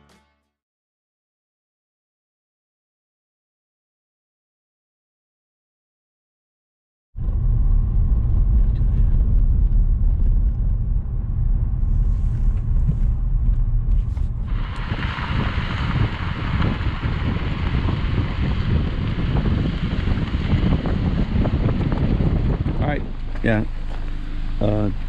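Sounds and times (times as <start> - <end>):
road rumble inside car: 7.2 - 25.0
wind and tyre noise: 7.2 - 25.0.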